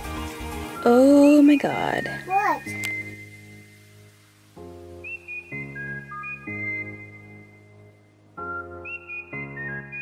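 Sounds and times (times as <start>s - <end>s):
whistled melody: 0.6s - 3.8s, 4.8s - 10.0s.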